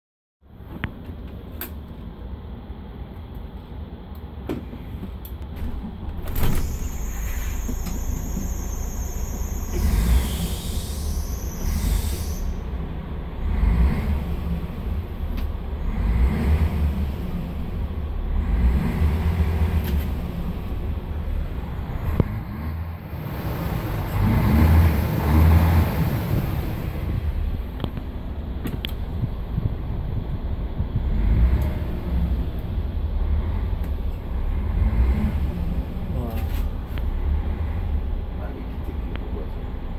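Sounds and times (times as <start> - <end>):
bus diesel engine accelerating: 2.1 - 39.9.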